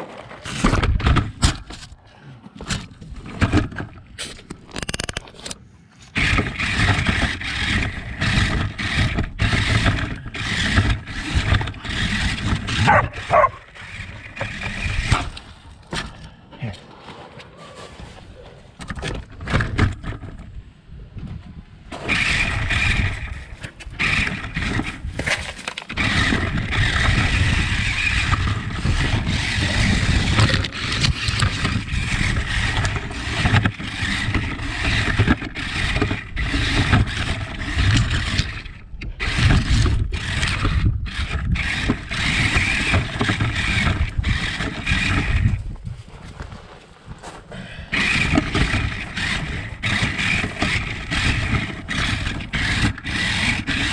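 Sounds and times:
radio-controlled car motor: 0:06.1 - 0:15.5, 0:22.0 - 0:45.8, 0:47.9 - 0:53.9.

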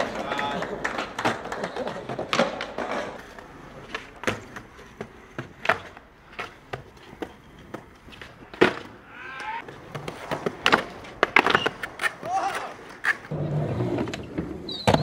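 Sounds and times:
skateboard landing slap: 0:00.0 - 0:03.2, 0:08.5 - 0:12.9
skateboard wheels rolling on concrete: 0:00.0 - 0:15.0
skateboard truck grinding on ledge: 0:13.3 - 0:15.0.

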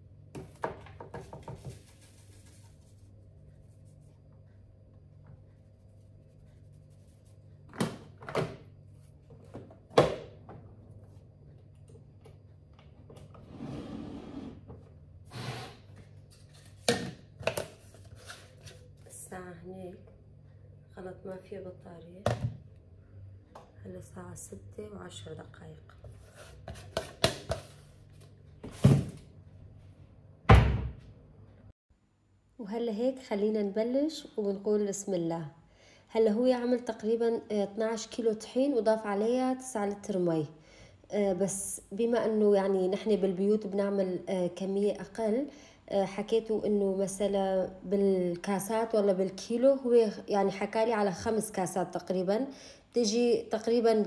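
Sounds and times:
low steady hum: 0:15.9 - 0:54.0.

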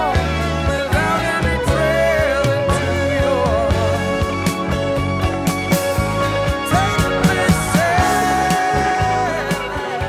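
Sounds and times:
soft rock song with drums and bass: 0:00.0 - 0:10.0.

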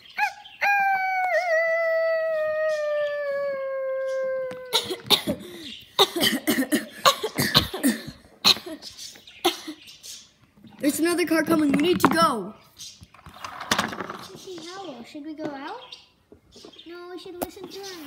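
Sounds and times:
wolf-like howl: 0:00.6 - 0:04.7
short sharp coughing sounds: 0:04.7 - 0:09.9.

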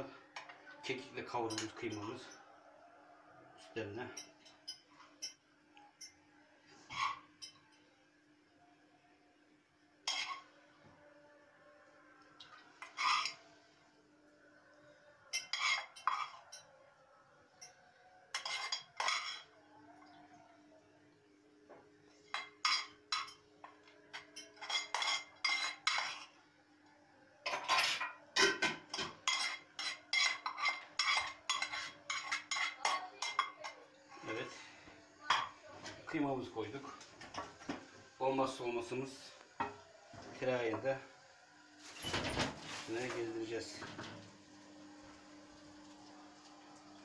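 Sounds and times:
spoon scraping and tapping a pan: 0:10.0 - 0:10.5, 0:12.4 - 0:13.4, 0:15.3 - 0:16.7, 0:17.6 - 0:19.6, 0:22.2 - 0:26.4, 0:27.4 - 0:33.8.

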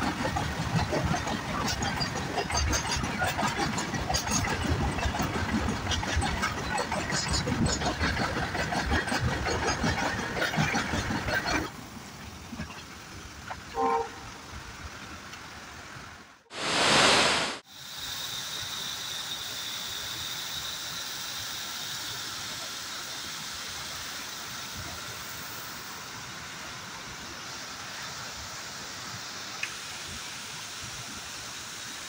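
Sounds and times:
burst of rushing noise: 0:16.5 - 0:17.6
waterfall rushing: 0:16.5 - 0:17.6.

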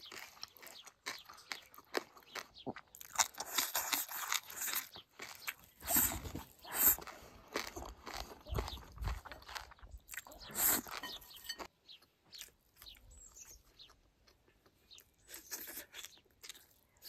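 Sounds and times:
person chewing: 0:00.0 - 0:17.0.

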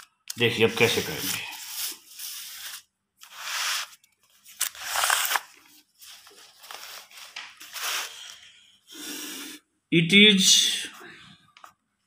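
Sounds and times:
paper pages rustling: 0:00.8 - 0:08.4.

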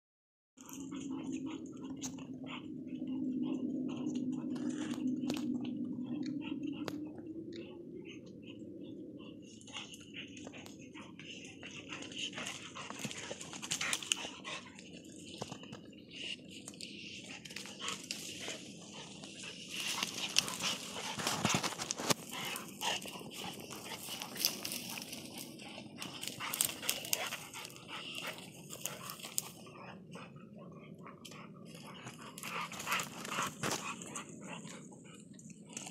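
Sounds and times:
dogs play-fighting: 0:00.6 - 0:07.2, 0:08.0 - 0:35.9
dry twigs rustling and crackling: 0:09.5 - 0:29.9, 0:31.2 - 0:35.9.

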